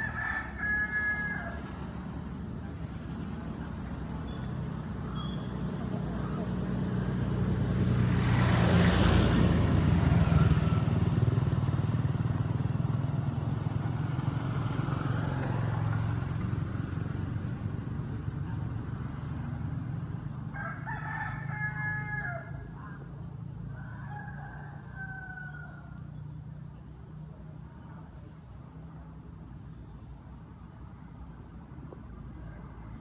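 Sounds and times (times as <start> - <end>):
rooster crowing: 0.0 - 1.8, 20.5 - 22.7, 23.7 - 26.1
low engine hum: 0.0 - 33.0
vehicle passing: 0.0 - 33.0.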